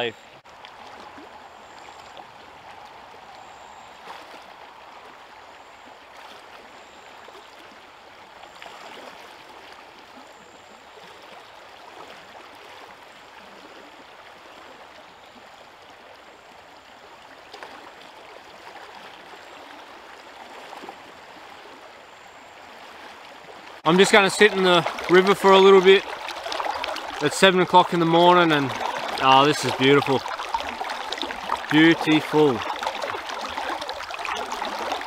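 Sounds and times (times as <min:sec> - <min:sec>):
faint splashes of wading: 0:00.0 - 0:35.0
river rushing over rocks: 0:23.8 - 0:35.0.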